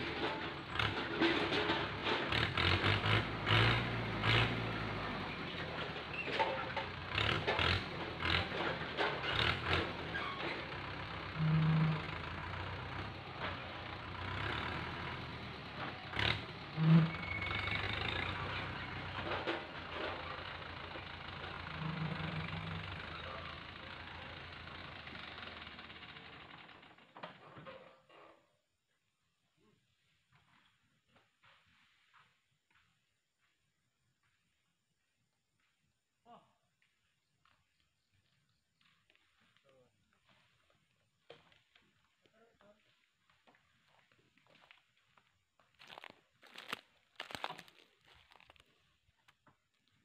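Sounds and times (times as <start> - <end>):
tractor engine running: 0.0 - 27.4
knocks and clatters of fruit bunches: 45.7 - 48.7.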